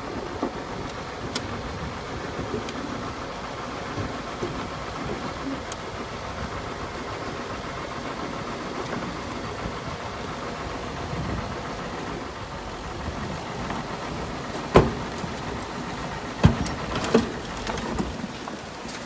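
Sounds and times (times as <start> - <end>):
heavy machinery diesel engine: 0.0 - 19.0.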